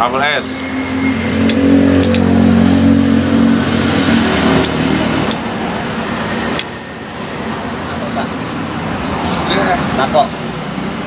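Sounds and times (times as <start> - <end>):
vehicle engine running: 0.0 - 8.4
sharp clicks: 1.4 - 2.3, 4.6 - 5.8.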